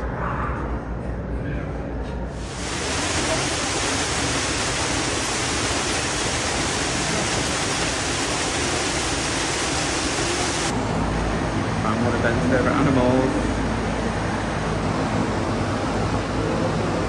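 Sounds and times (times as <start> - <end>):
falling water rushing: 2.4 - 10.7.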